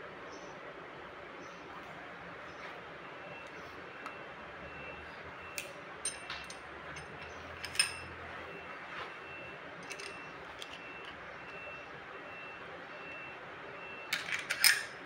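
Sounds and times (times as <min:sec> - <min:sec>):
hand tools clicking on metal: 0:09.8 - 0:11.2, 0:14.1 - 0:15.0.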